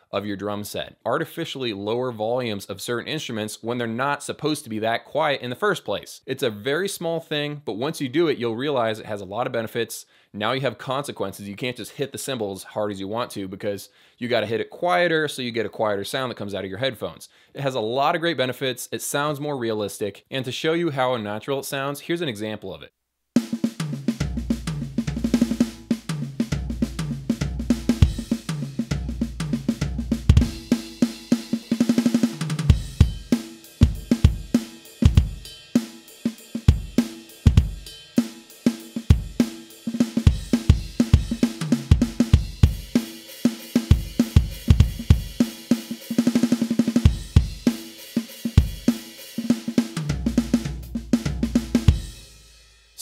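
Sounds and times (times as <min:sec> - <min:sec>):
electronic drum kit beat: 0:23.4 - 0:52.5.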